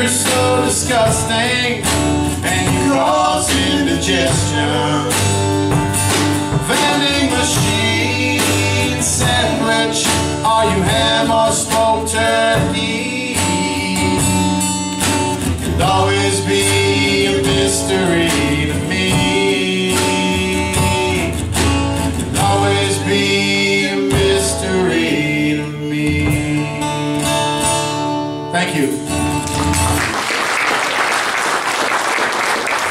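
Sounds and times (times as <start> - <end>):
men singing long notes: 0.0 - 5.5, 6.5 - 14.6, 15.7 - 21.4, 22.3 - 27.0
acoustic guitar strumming: 0.0 - 30.1.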